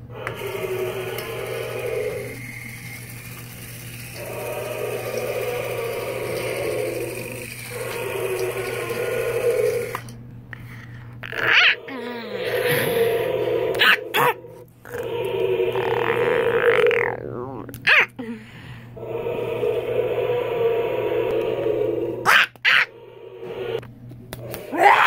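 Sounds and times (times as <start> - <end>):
toy motor and gears whirring: 0.1 - 10.2.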